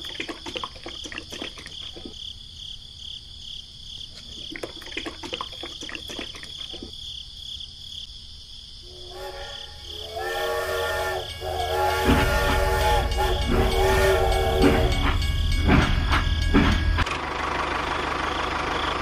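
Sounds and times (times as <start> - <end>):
crickets chirping: 0.0 - 17.0
toy train electronic horn: 8.9 - 16.5.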